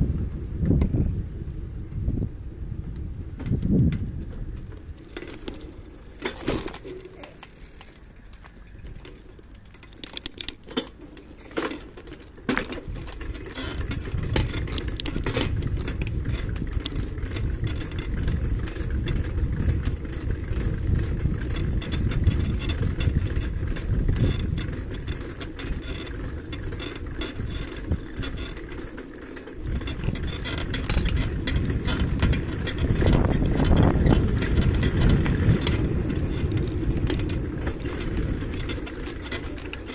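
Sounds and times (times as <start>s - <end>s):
wind rushing over microphone: 0.0s - 5.1s, 12.8s - 26.8s, 29.6s - 39.3s
tyres rumbling on road: 10.9s - 39.9s
rattles and knocks: 29.8s - 39.9s.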